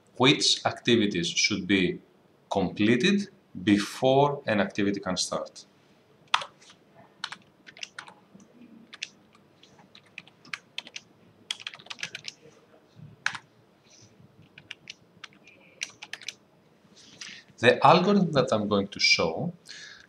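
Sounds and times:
typing on computer keyboard: 6.3 - 6.6, 7.2 - 8.2, 8.9 - 9.2, 9.9 - 12.4, 13.2 - 13.4, 14.4 - 16.4.

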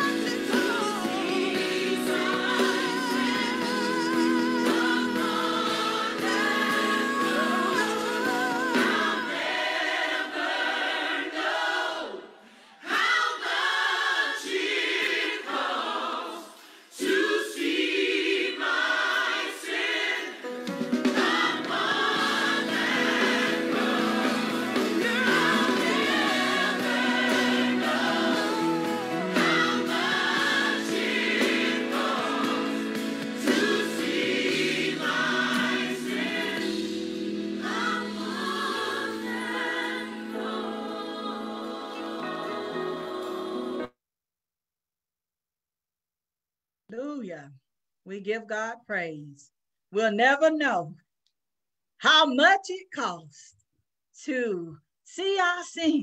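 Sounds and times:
gospel choir singing: 0.0 - 43.9.

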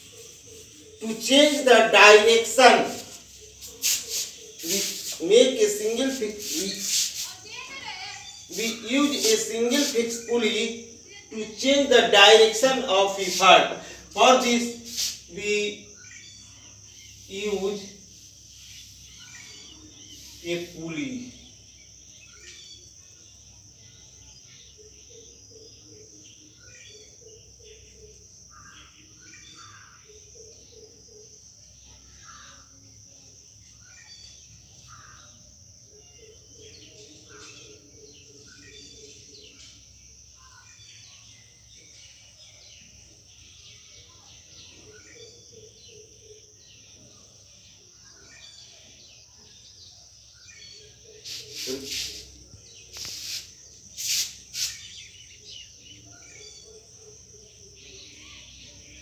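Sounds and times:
marker squeaking on whiteboard: 0.0 - 7.4, 51.2 - 54.9
birds chirping: 0.0 - 59.0.

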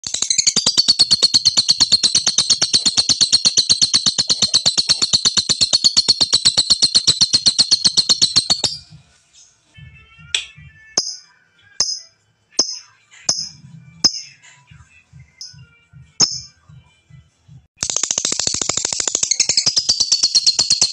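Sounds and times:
lovebird chattering: 0.0 - 8.8, 17.8 - 20.9.

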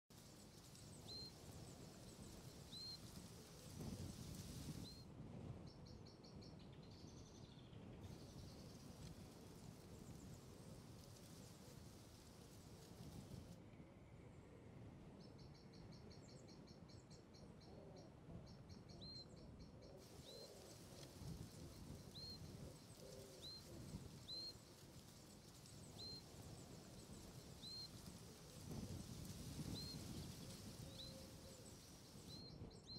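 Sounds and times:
upswept bird chirp: 0.1 - 5.0, 18.8 - 32.9
low steady hiss: 0.1 - 5.3, 6.7 - 32.9.

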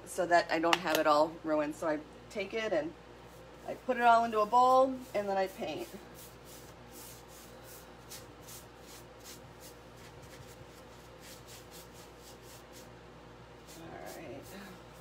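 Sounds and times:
paintbrush swishing strokes: 3.3 - 12.9.

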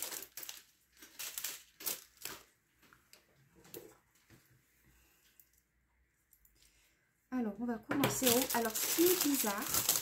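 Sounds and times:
plastic packet crinkling: 0.0 - 2.6, 8.0 - 10.0.

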